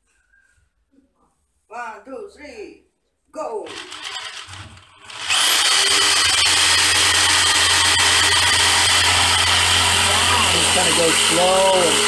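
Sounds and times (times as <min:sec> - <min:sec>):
jigsaw cutting wood: 0:03.7 - 0:12.0.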